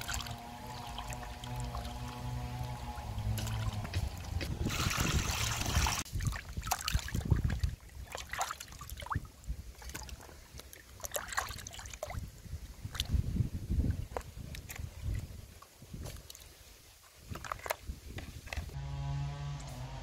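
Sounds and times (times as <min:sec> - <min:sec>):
water dripping: 0:00.0 - 0:06.0
water splashing in a plastic basin: 0:00.0 - 0:16.6, 0:17.2 - 0:18.8.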